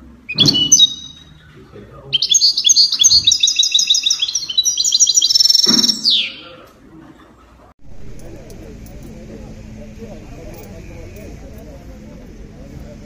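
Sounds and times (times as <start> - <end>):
songbird chirping trills: 0.3 - 6.6.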